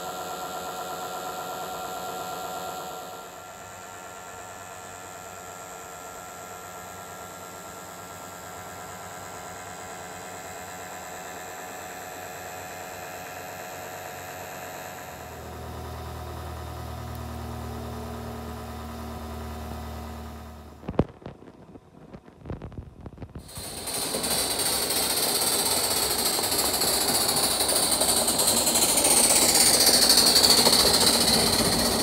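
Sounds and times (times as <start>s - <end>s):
low steady burner rumble: 11.7s - 32.0s
gas burner hissing: 23.3s - 32.0s.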